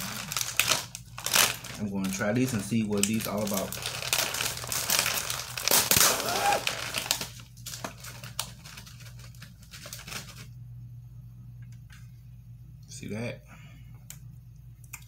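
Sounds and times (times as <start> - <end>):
plastic packaging crinkling: 0.0 - 10.6.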